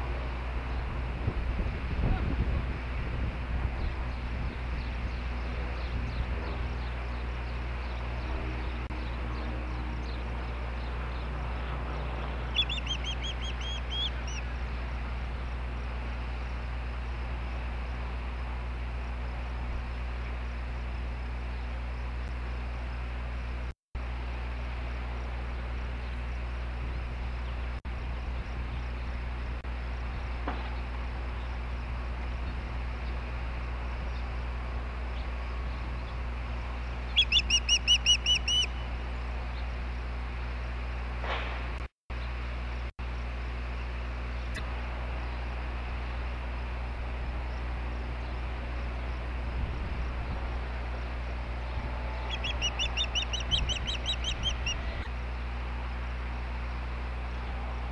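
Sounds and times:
bird chirping high: 4.5s - 14.6s, 36.8s - 39.0s, 51.6s - 55.0s.

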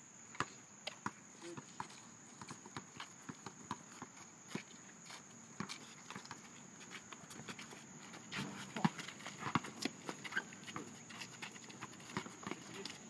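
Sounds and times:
basketball bouncing on asphalt: 0.4s - 4.7s, 5.6s - 6.5s, 8.2s - 13.0s.

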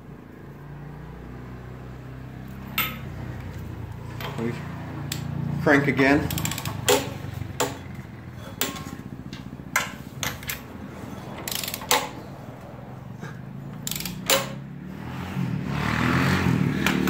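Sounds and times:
socket wrench metal clicks: 6.3s - 7.8s, 11.4s - 12.2s, 13.7s - 14.6s.

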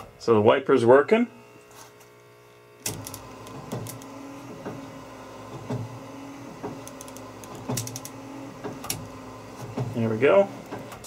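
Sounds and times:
windshield wiper motor humming: 2.8s - 11.0s
wiper motor clunk: 2.8s - 11.0s.

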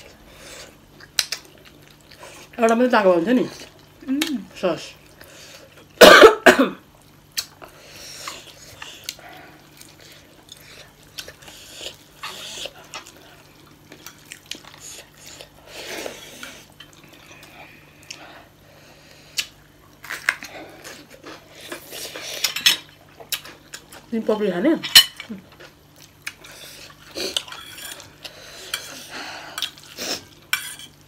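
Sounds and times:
chewing and smacking: 0.0s - 2.6s, 7.0s - 18.3s, 19.2s - 24.1s, 25.1s - 30.9s.

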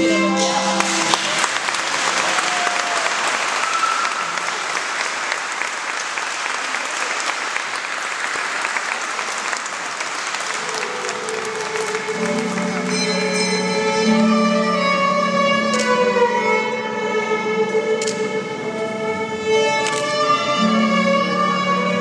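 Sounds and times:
soft instrumental music: 0.0s - 1.4s, 10.8s - 22.0s
crowd applauding: 0.1s - 14.0s.

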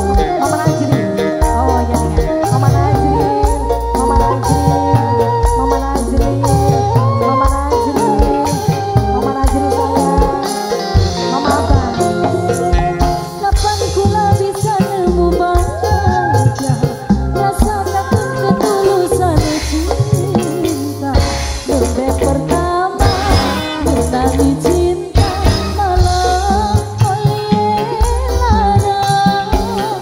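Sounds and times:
drums and percussion beat: 0.0s - 30.0s
live band music: 0.0s - 30.0s.

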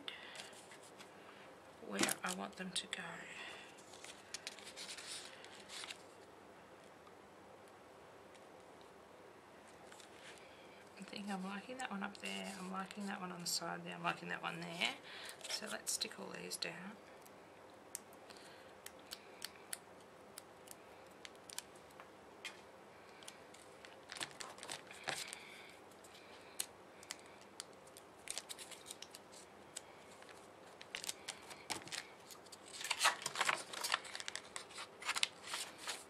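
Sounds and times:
paper rustling: 3.8s - 6.1s, 23.2s - 26.4s, 27.8s - 36.0s.

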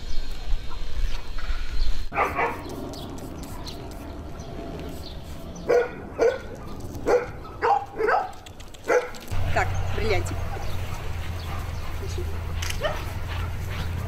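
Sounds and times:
dogs barking: 2.1s - 2.9s, 5.6s - 14.0s.

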